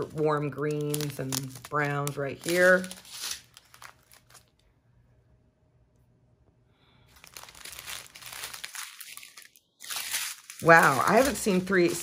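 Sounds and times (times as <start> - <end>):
plastic bags crinkling: 0.0 - 4.6, 7.1 - 12.0.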